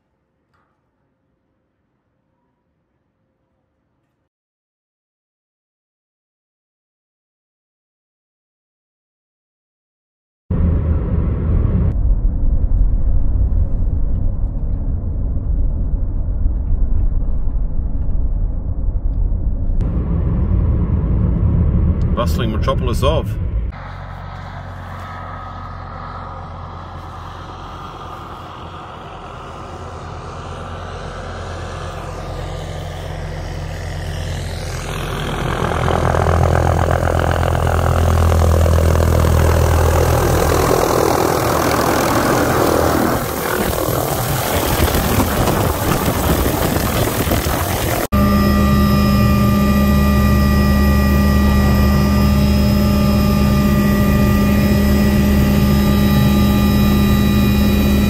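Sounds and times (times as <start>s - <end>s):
helicopter cabin engine whine: 13.8s - 58.0s
helicopter rotor and engine: 22.2s - 58.0s
rotor wash blowing: 23.8s - 48.1s.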